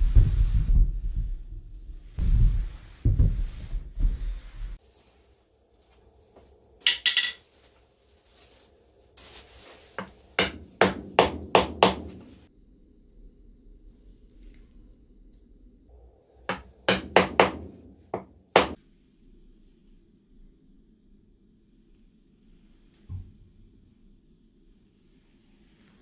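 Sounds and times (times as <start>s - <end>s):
wooden log knocking and rubbing: 16.5s - 18.8s.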